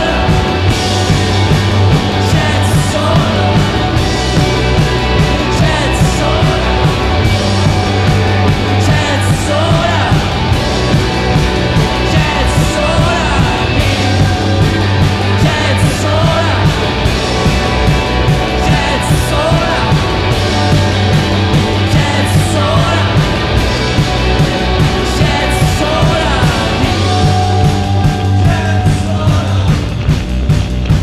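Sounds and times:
man singing: 0.0s - 10.6s, 11.7s - 30.1s
rock band playing: 0.0s - 31.0s.

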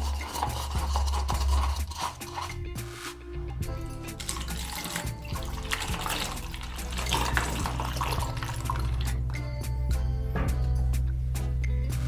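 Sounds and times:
background music: 0.0s - 12.0s
water pouring into a plastic funnel: 4.2s - 9.2s.

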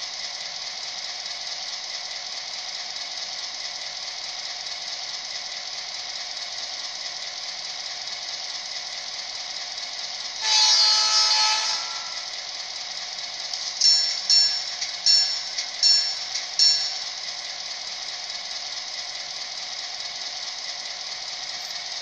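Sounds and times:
diesel engine sound through small speaker: 0.0s - 22.0s
multi-tone horn blast: 10.4s - 12.3s.

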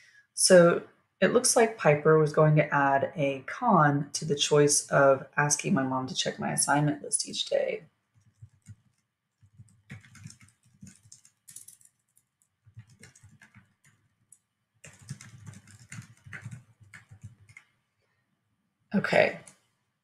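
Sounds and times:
typing on computer keyboard: 8.2s - 17.7s.

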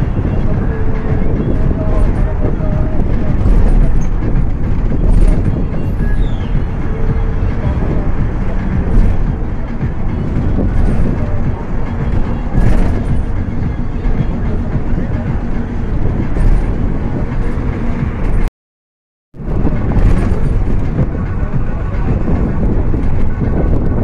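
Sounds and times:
rumbling road noise: 0.0s - 18.5s, 19.4s - 24.0s
wind from moving vehicle: 0.0s - 18.5s, 19.4s - 24.0s.

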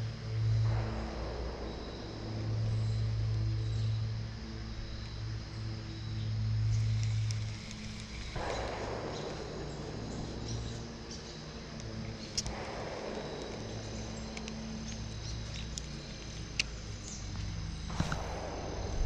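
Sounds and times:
high insect drone: 0.0s - 19.0s
steady low hum: 0.0s - 19.0s
sharp clicks: 11.8s - 18.9s.

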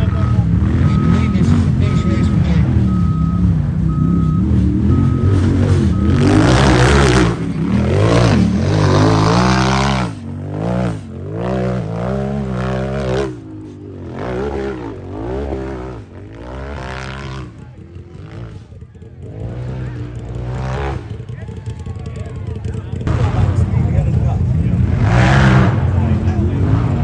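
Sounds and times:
short beep: 0.0s - 8.3s
engine revving hard: 0.0s - 21.2s, 24.5s - 27.0s.

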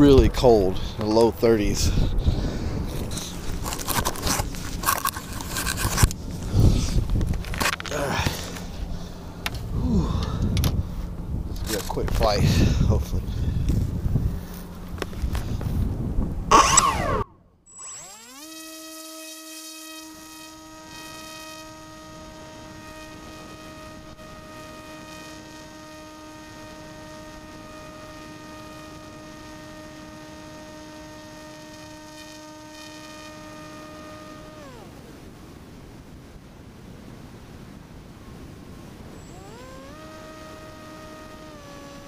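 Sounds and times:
electric motor propeller whine: 0.0s - 36.0s, 38.0s - 42.0s.

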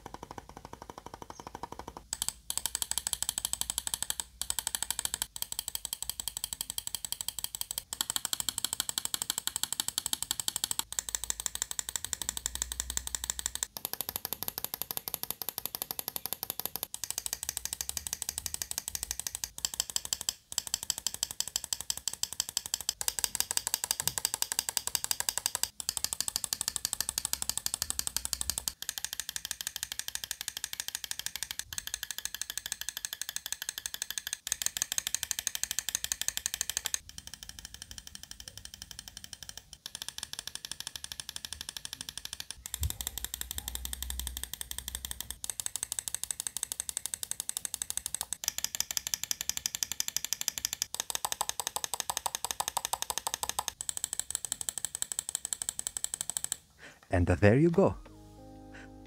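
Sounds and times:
mouse buttons clicking: 0.0s - 8.0s.

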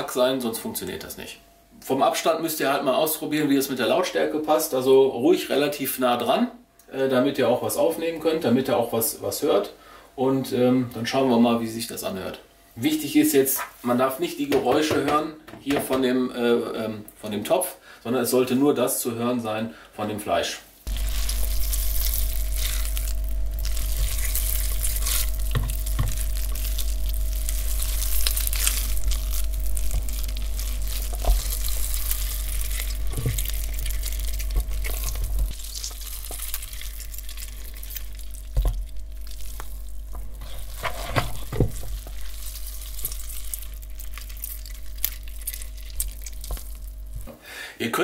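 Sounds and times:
hands squelching minced meat: 20.9s - 47.2s.

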